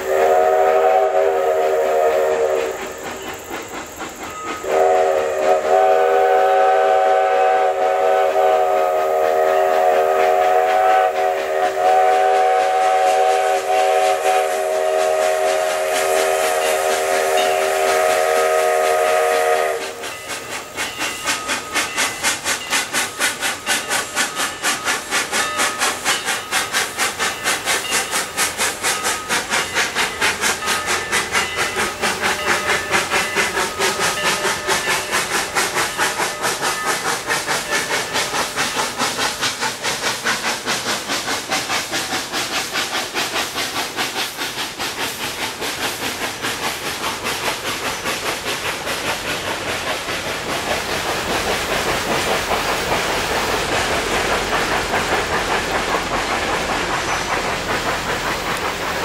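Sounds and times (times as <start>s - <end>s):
steam whistle chime: 0.0s - 3.4s, 4.2s - 28.1s
steam locomotive exhaust beats: 0.0s - 59.0s.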